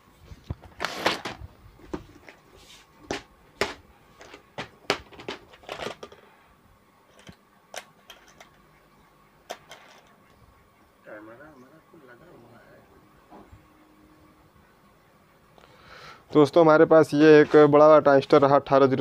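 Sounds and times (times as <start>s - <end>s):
plastic box clicks and rattles: 3.1s - 6.2s
small parts clinking: 5.1s - 6.3s, 7.1s - 8.6s, 9.5s - 10.2s.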